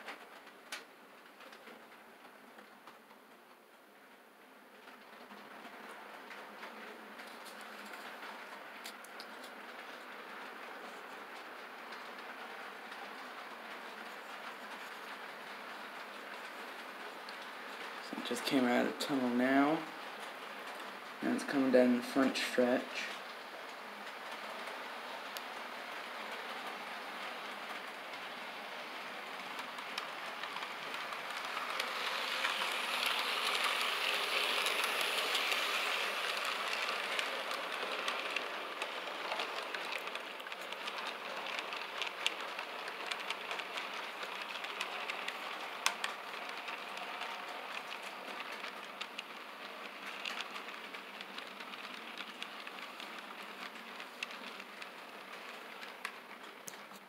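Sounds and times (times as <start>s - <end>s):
model train wheels whirring: 0.0s - 57.0s
track clicks: 20.0s - 57.0s.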